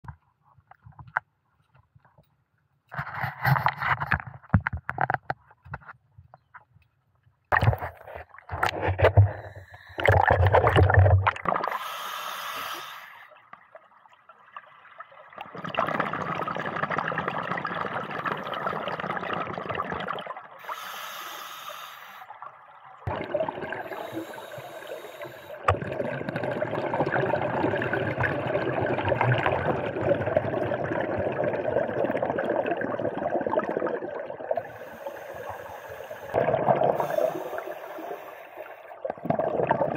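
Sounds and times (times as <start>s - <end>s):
diver breathing through regulator: 9.2s - 10.1s, 11.6s - 13.3s, 20.6s - 22.3s, 23.8s - 25.7s, 34.6s - 38.9s.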